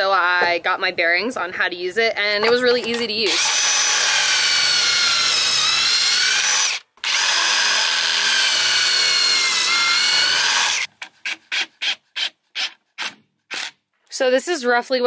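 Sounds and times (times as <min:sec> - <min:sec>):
cordless drill whining: 0:02.8 - 0:13.7.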